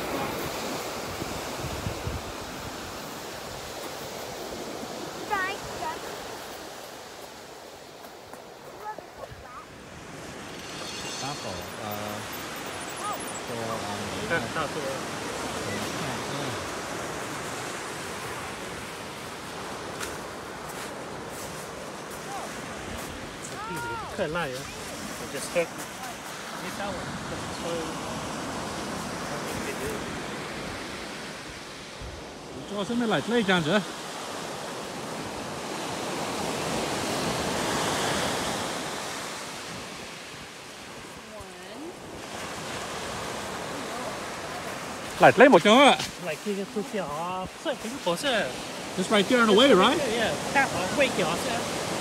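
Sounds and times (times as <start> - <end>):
surf washing on gravel beach: 0.0 - 52.0.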